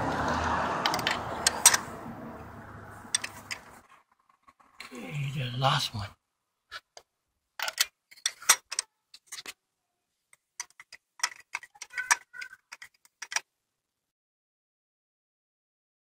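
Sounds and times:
metal socket clinking: 0.8s - 1.9s, 3.1s - 3.7s, 7.6s - 9.6s, 10.6s - 13.4s
ratchet clicking: 0.8s - 1.9s, 3.1s - 3.7s.

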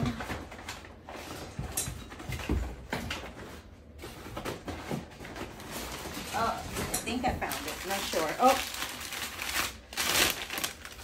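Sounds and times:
packing paper rustling: 3.3s - 11.0s.

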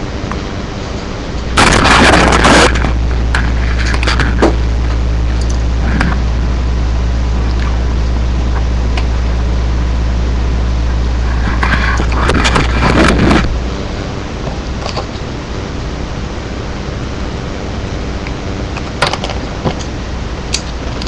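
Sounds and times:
low electrical hum: 0.0s - 21.0s.

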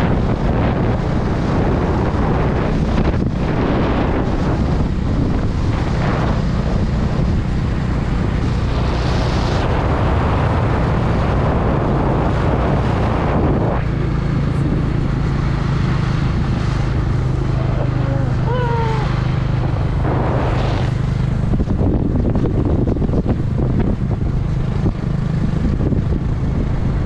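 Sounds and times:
motorcycle engine hum: 0.0s - 27.0s
wind buffeting microphone: 0.0s - 27.0s.

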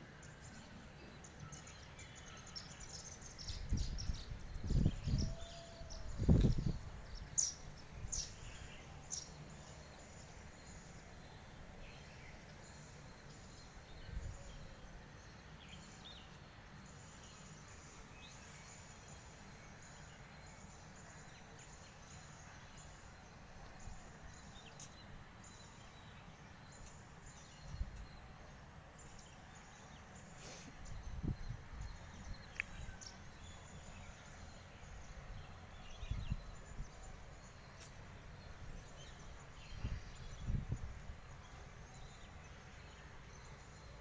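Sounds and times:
sparrows chirping: 0.2s - 44.0s.

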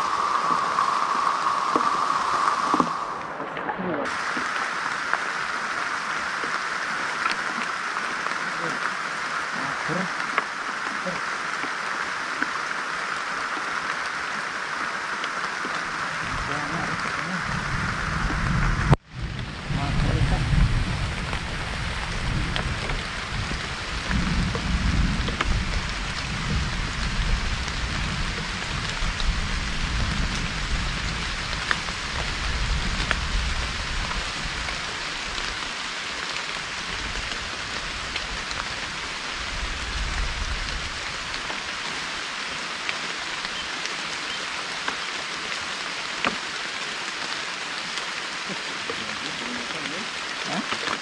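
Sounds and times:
heavy rain on water and leaves: 0.0s - 51.0s
low rumble: 16.0s - 35.7s.

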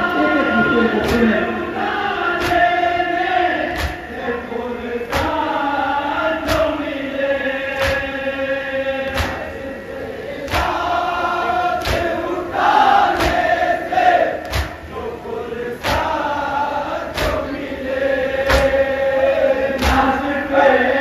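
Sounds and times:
men chanting together: 0.0s - 21.0s
chest slapping in unison: 1.0s - 1.4s, 2.4s - 2.8s, 3.6s - 4.1s, 5.1s - 5.4s, 6.4s - 6.9s, 7.8s - 8.2s, 9.1s - 9.5s, 10.5s - 10.9s, 11.8s - 12.2s, 13.1s - 13.6s, 14.4s - 14.9s, 15.8s - 16.1s, 17.1s - 17.5s, 18.5s - 18.9s, 19.8s - 20.2s.

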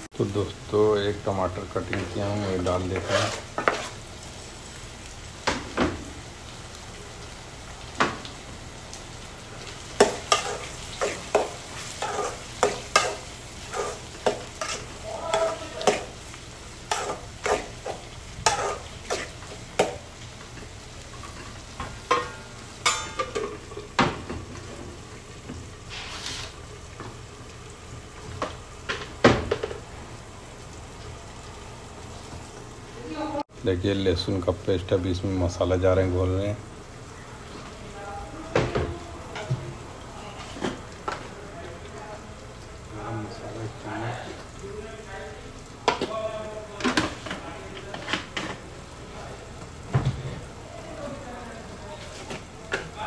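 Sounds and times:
food sizzling in oil: 0.0s - 53.0s
metal spoon scraping a pan: 2.9s - 4.0s, 10.0s - 16.2s, 16.9s - 20.0s.

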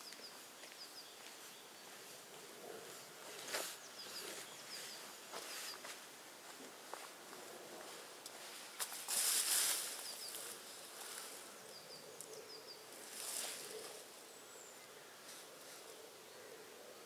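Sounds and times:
small birds chirping: 0.0s - 17.0s
rustling: 7.4s - 11.5s.

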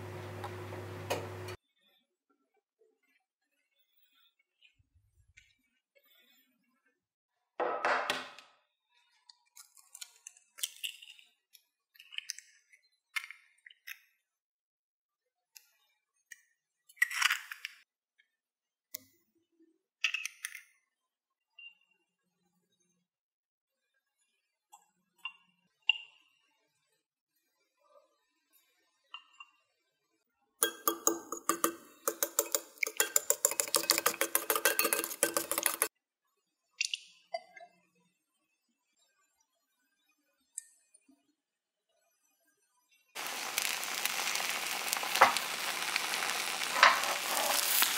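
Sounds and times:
egg cracking on ceramic bowl: 30.6s - 35.9s
eggshell crackling clicks: 43.2s - 47.9s.

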